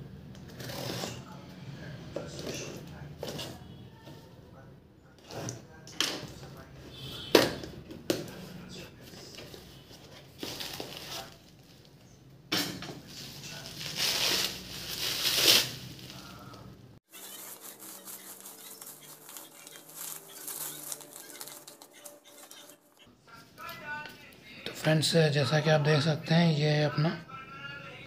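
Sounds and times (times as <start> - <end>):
bubble wrap crinkling: 10.2 - 11.9, 13.1 - 23.0
fine crackling: 13.1 - 23.0.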